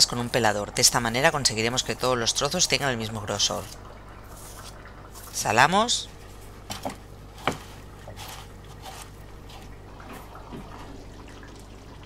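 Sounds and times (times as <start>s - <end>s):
hands squishing wet potato slices: 7.3s - 9.8s.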